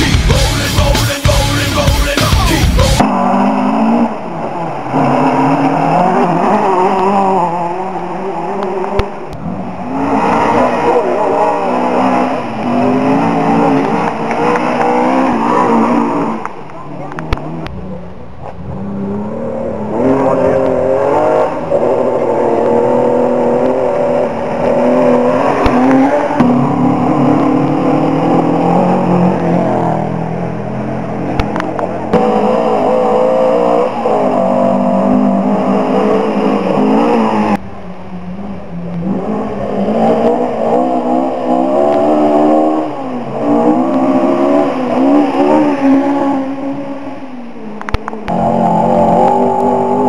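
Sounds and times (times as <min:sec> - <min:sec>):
rally car engines revving: 0:00.0 - 0:50.0.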